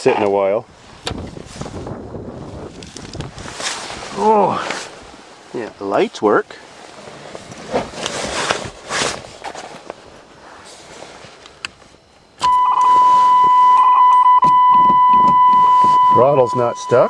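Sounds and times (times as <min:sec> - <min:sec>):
rustling and handling noises: 0:02.5 - 0:05.8, 0:06.6 - 0:12.2
car warning buzzer tone: 0:12.4 - 0:17.0.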